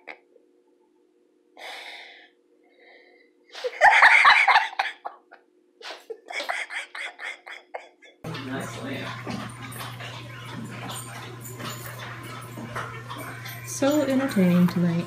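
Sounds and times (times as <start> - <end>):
person laughing: 0.0 - 0.3, 3.6 - 8.2
breathy gasp: 1.6 - 3.2.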